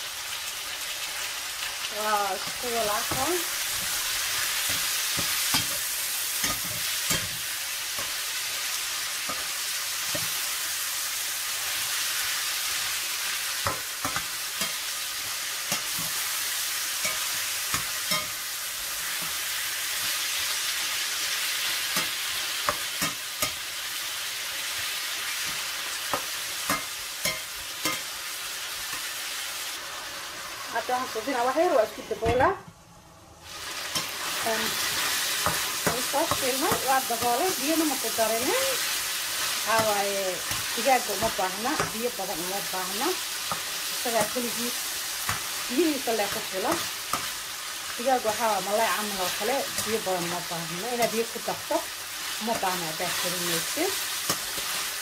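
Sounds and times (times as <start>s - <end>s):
chicken and onions sizzling in pan: 0.0s - 32.5s, 33.1s - 55.0s
metal spatula scraping a pan: 2.3s - 10.4s.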